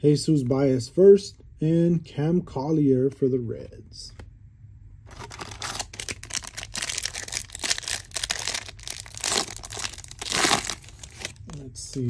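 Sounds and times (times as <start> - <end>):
wrapper tearing and crinkling: 5.1 - 11.4.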